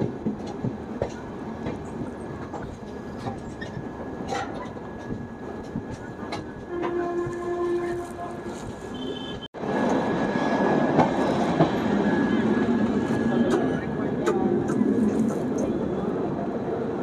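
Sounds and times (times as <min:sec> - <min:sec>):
train coach rumbling: 0:00.0 - 0:17.0
train horn: 0:06.7 - 0:09.5.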